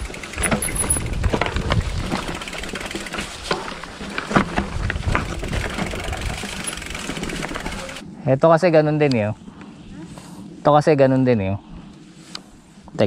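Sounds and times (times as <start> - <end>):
bike knocks and rattles: 0.0 - 8.0.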